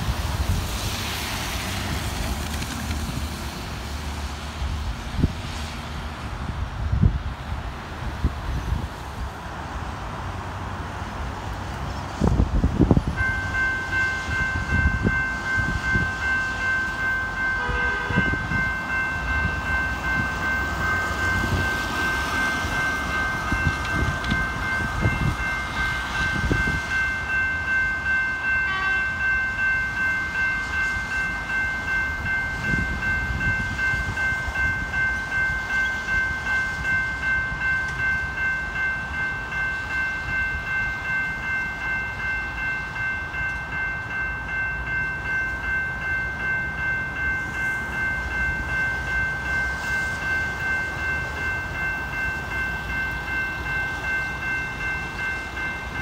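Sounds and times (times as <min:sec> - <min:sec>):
tyres on wet road: 0:00.0 - 0:14.7
level crossing bells ringing: 0:13.2 - 0:56.0.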